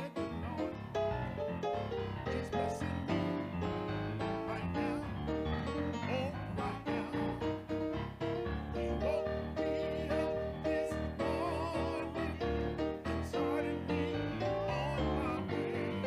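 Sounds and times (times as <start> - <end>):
keyboard worship music: 0.0 - 16.0
person singing with vibrato: 6.0 - 7.6, 8.7 - 16.0.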